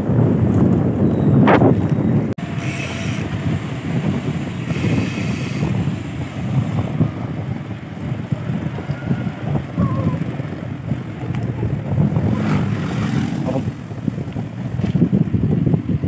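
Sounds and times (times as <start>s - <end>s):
wind buffeting microphone: 0.0s - 16.0s
higher rushing sound: 11.8s - 14.2s.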